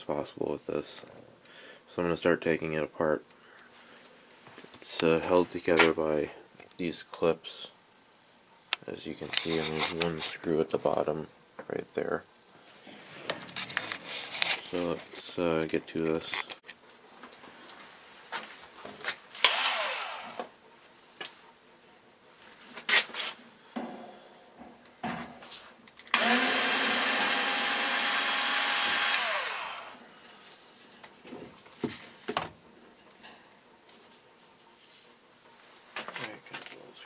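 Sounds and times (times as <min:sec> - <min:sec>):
power driver motor whirring: 0:19.4 - 0:20.5, 0:26.1 - 0:30.0
fan parts clicking and knocking: 0:23.7 - 0:26.1.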